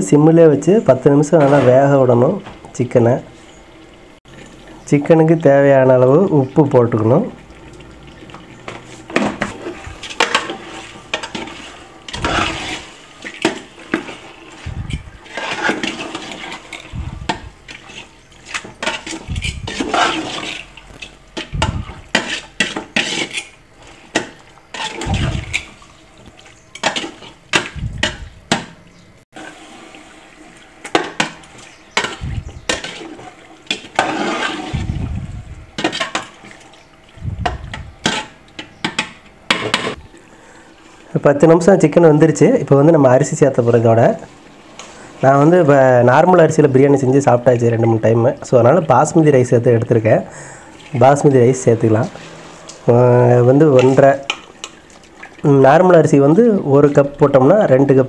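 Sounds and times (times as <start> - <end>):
spoon stirring thick sauce: 7.6 - 28.3, 30.8 - 35.0
spoon clinking and scraping pot: 8.6 - 14.3, 14.9 - 28.7, 30.8 - 34.8, 35.8 - 36.6.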